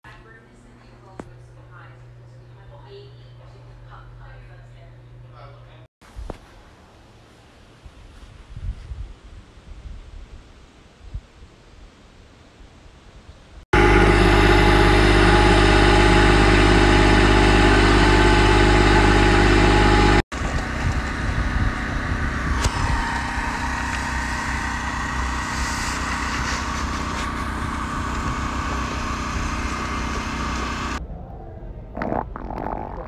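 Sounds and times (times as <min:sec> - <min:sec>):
tracked machine engine running: 0:13.7 - 0:31.0
quieter engine rumble: 0:13.7 - 0:33.0.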